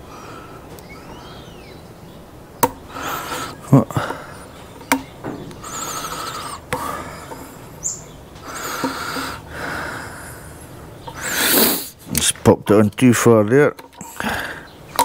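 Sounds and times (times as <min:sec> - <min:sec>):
rubbing and scraping on hose: 0:05.5 - 0:07.5, 0:08.4 - 0:09.4, 0:11.1 - 0:14.3.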